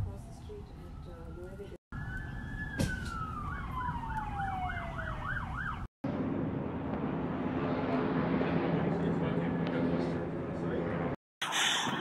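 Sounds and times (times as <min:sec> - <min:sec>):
street background noise: 0:00.0 - 0:05.8
wailing siren: 0:00.0 - 0:05.9
yelping siren: 0:00.1 - 0:05.9.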